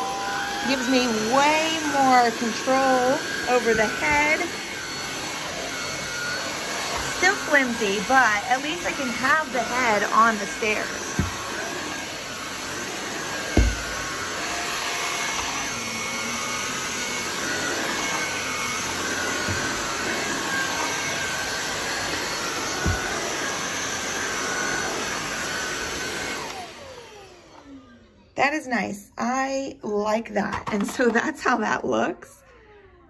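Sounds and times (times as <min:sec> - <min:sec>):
stick vacuum running: 0:00.0 - 0:28.0
vacuum head knocking on stairs: 0:10.4 - 0:11.6, 0:13.4 - 0:14.2, 0:19.3 - 0:20.0, 0:22.1 - 0:23.4.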